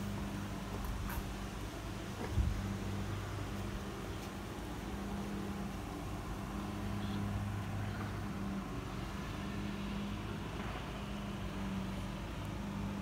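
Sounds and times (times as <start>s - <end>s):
low motor hum: 0.0s - 13.0s.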